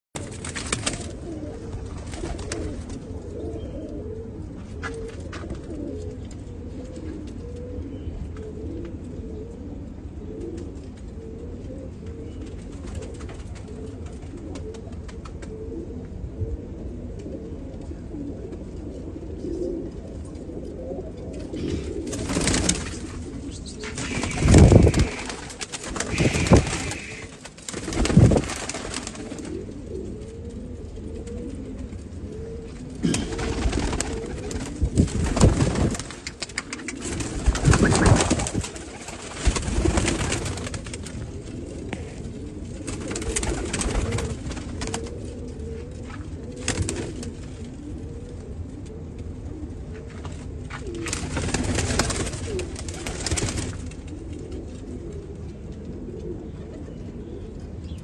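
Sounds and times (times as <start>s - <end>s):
wings flapping: 0.2s - 3.1s, 12.5s - 15.6s, 21.4s - 32.0s, 32.7s - 47.7s, 50.2s - 54.6s
pigeons cooing: 0.2s - 58.0s.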